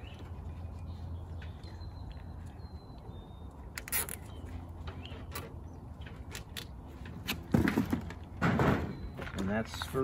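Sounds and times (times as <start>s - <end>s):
zip tie ratcheting: 3.8s - 4.3s.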